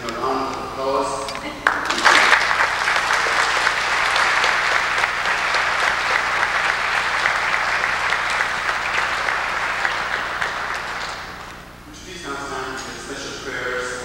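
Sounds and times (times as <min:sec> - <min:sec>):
crowd applauding: 0:01.6 - 0:11.6.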